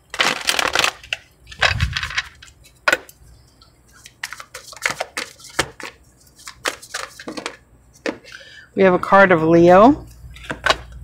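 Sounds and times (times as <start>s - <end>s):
cards riffling: 4.0s - 7.6s.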